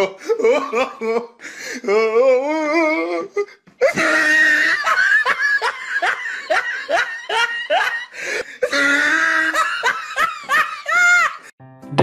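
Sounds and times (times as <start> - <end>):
person laughing loudly: 0.0 - 11.5.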